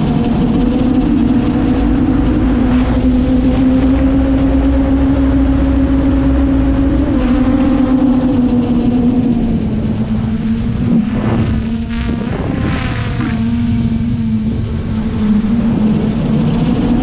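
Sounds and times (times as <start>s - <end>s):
drone propellers buzzing: 0.0s - 17.0s
rush of air: 10.0s - 16.2s.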